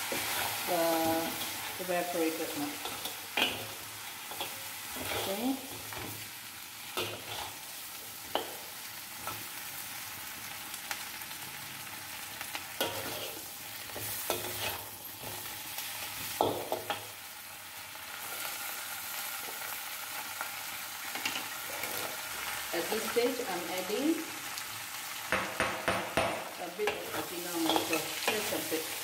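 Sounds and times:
metal spatula scraping a wok: 0:00.0 - 0:06.0, 0:07.0 - 0:07.8, 0:12.8 - 0:15.6, 0:26.9 - 0:28.7
crabs sizzling in a wok: 0:00.0 - 0:29.0.

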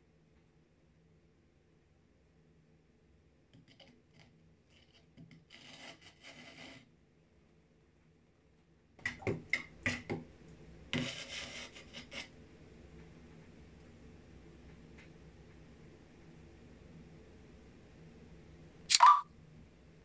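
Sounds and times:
metal spoon scraping plastic jug: 0:04.9 - 0:06.8, 0:11.0 - 0:12.3.

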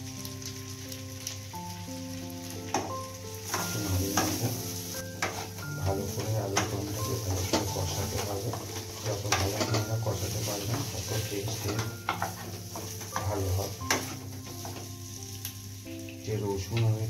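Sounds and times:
potatoes sizzling in oil: 0:00.0 - 0:17.0
stirring knocks against pan: 0:06.2 - 0:06.8, 0:11.5 - 0:14.9.

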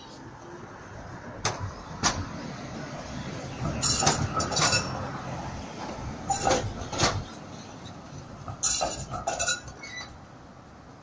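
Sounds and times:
tram rumbling: 0:00.0 - 0:11.0
tram wheels clacking over rails: 0:01.4 - 0:02.5, 0:03.5 - 0:10.2.

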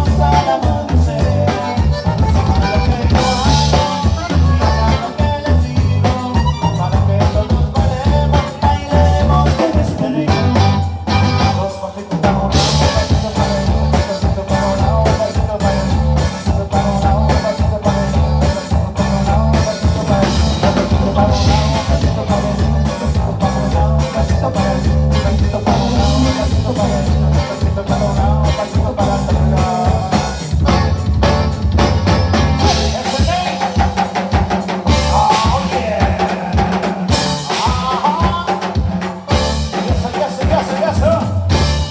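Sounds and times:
live band with accordion: 0:00.0 - 0:41.9.

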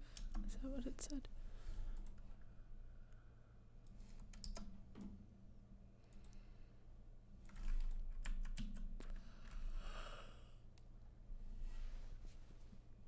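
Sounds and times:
keyboard typing: 0:04.0 - 0:04.8, 0:07.5 - 0:09.0.

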